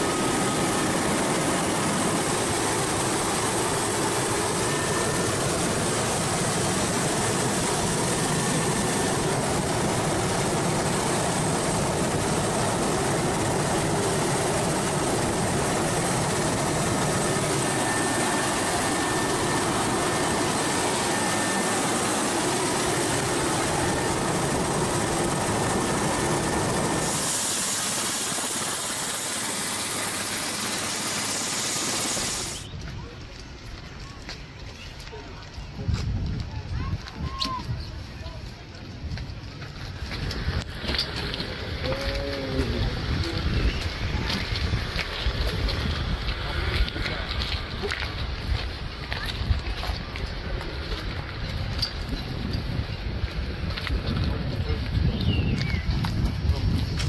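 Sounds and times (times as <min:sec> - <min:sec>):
faint high whines: 0:00.0 - 0:32.8.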